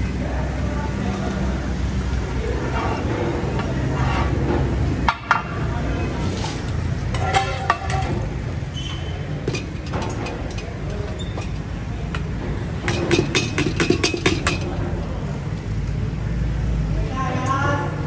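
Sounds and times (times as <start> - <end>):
steel cookware clinking: 7.0 - 8.3, 9.4 - 14.8.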